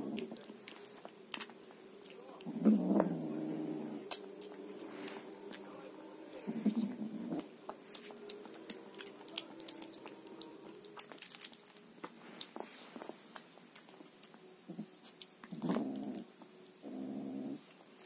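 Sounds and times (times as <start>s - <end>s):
low steady drone: 0.0s - 12.4s
kitten crunching food: 0.0s - 17.8s.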